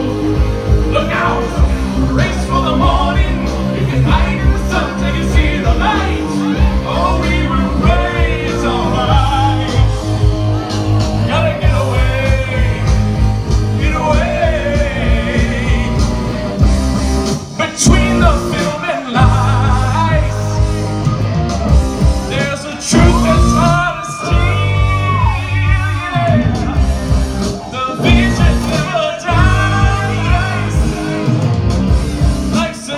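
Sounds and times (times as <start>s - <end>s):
man singing: 0.0s - 16.6s, 17.4s - 20.8s, 22.2s - 31.6s, 32.3s - 32.9s
live rock band playing: 0.0s - 32.9s.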